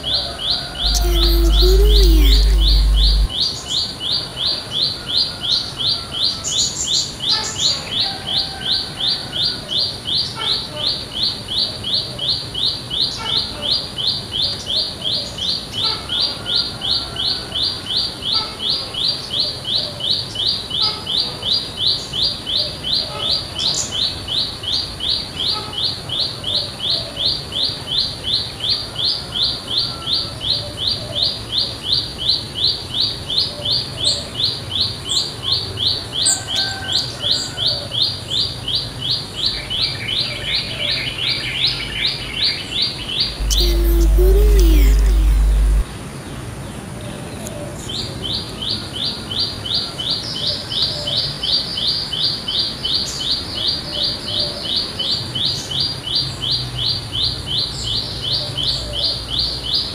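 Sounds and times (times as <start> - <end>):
faint bird calls: 0.8 - 3.3, 43.4 - 45.8
small warbler calling sharp high note: 0.8 - 3.3.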